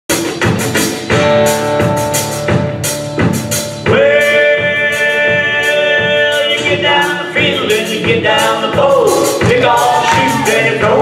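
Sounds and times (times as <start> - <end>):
country band playing: 0.1 - 11.0
person singing: 3.9 - 11.0.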